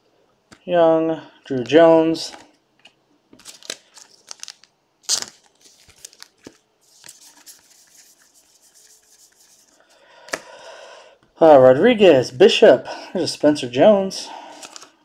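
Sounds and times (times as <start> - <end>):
cards swishing and clicking: 5.2 - 10.4.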